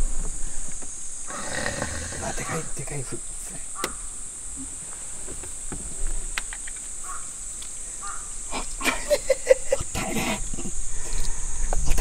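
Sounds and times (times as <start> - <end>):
high-pitched hiss: 0.0 - 12.0
crow cawing: 1.3 - 2.7, 3.8 - 4.2, 7.0 - 8.6.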